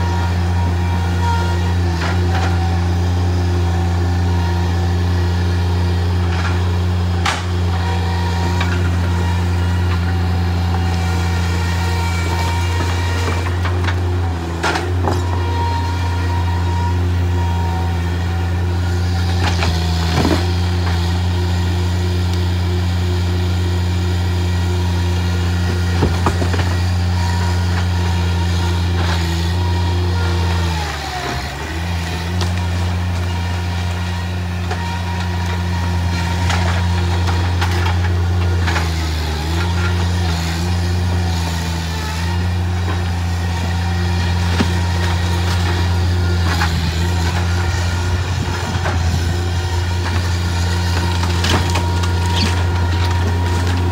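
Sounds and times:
loader engine drone and whine: 0.0 - 53.9.

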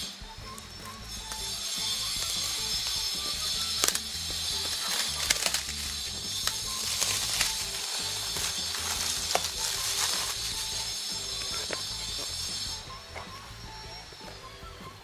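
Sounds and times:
plastic shrink-wrap crinkling: 0.0 - 12.8
scissors snipping: 2.8 - 10.4.

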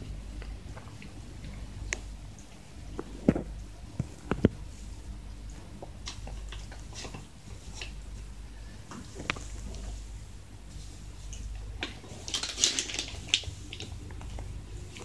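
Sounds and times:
plastic bags crinkling: 11.8 - 15.0.

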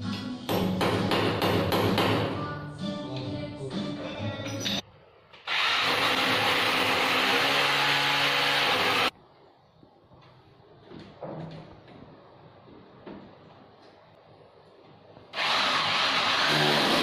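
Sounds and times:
electric drill boring into wall: 5.5 - 9.1, 15.4 - 17.0.

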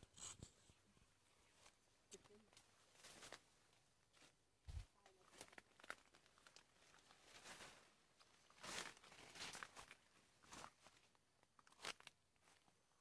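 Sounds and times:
footsteps through leaf litter: 7.1 - 7.9, 8.5 - 10.8.

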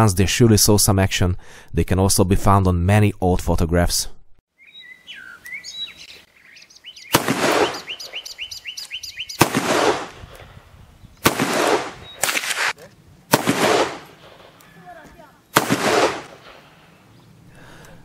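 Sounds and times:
bird chirping: 4.5 - 9.5, 11.9 - 12.4, 16.5 - 17.5
revolver gunshots: 7.1 - 8.3, 9.4 - 10.6, 11.2 - 14.6, 15.5 - 17.0.

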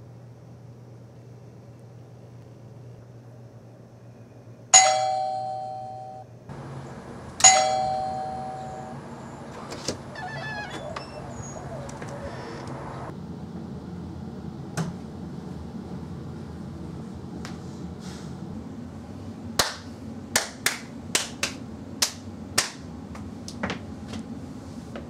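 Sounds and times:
two-tone doorbell chime: 4.8 - 6.2, 7.4 - 9.0.

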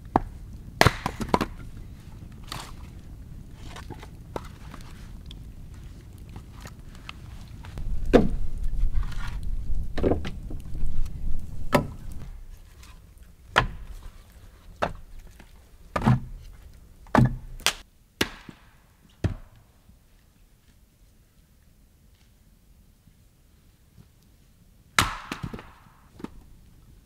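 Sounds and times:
firewood knocking together: 7.8 - 12.4.

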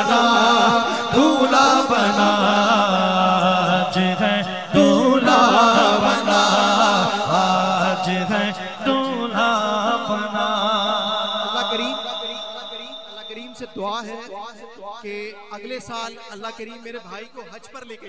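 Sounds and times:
person singing devotional song: 0.0 - 14.2.

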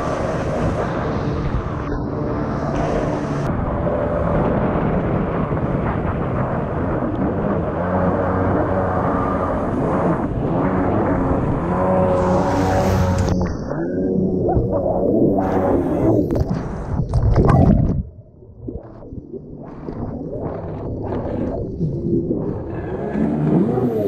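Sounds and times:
rushing water and spray: 0.0 - 4.6
jet ski engine running hard: 0.0 - 14.4, 22.4 - 24.0.

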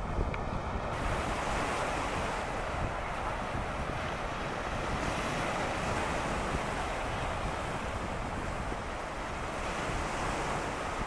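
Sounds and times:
choppy sea water: 0.0 - 11.0
wind: 0.0 - 11.0
wind rumbling on microphone: 0.0 - 11.0.

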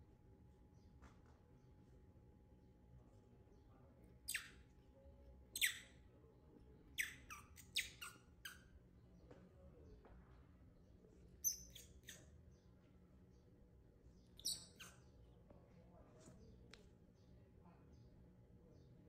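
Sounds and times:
baby monkey squeaking: 4.3 - 4.6, 5.6 - 6.0, 7.0 - 8.7, 11.4 - 12.3, 14.4 - 15.1.

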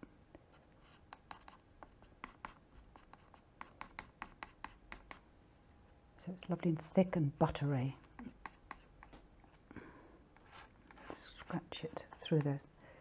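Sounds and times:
palette knife scraping paint: 0.7 - 5.3, 8.0 - 9.6, 10.4 - 12.6.

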